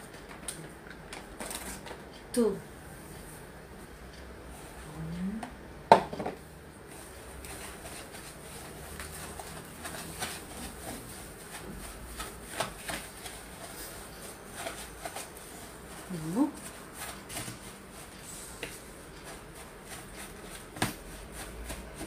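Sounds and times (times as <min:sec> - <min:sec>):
whisk stirring batter in plastic bowl: 0:06.9 - 0:22.0.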